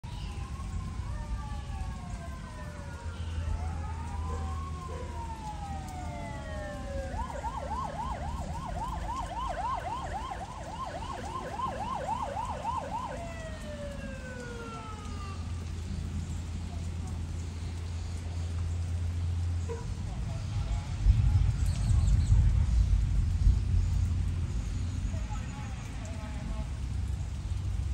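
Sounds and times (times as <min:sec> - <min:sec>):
fire siren wailing and yelping: 0:00.0 - 0:16.6.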